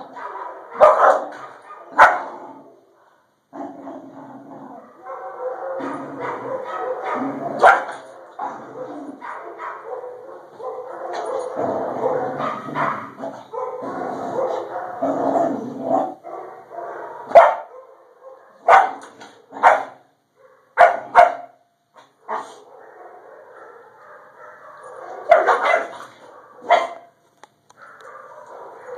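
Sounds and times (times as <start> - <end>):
puppy barking: 0.0 - 2.4, 4.8 - 15.0, 16.0 - 28.9.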